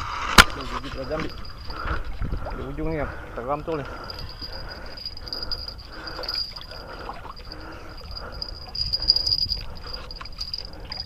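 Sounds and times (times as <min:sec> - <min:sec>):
wind rumble on microphone: 0:00.0 - 0:03.4, 0:07.3 - 0:11.0.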